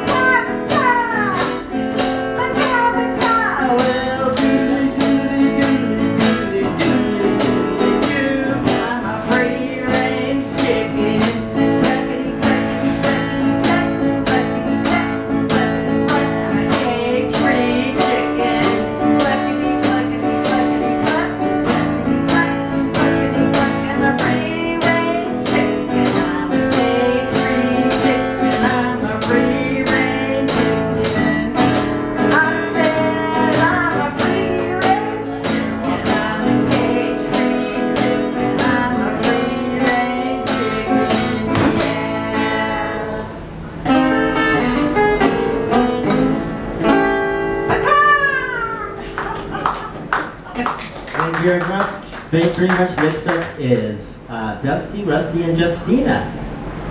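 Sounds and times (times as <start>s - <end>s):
drum kit beat: 0.0s - 42.2s
strummed guitar: 0.0s - 50.4s.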